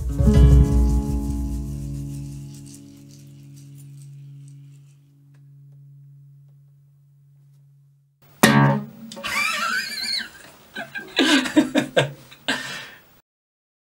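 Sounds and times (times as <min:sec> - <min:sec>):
classical guitar strums and plucks: 0:00.0 - 0:09.3.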